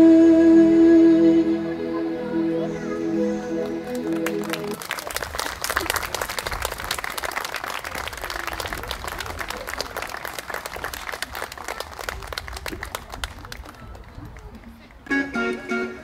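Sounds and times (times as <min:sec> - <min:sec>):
crowd applauding: 0:03.5 - 0:15.0.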